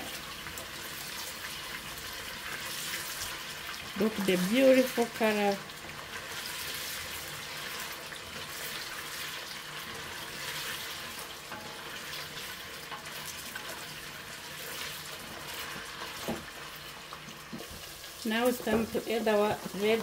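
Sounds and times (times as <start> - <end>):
vegetables sizzling in oil: 0.0 - 20.0.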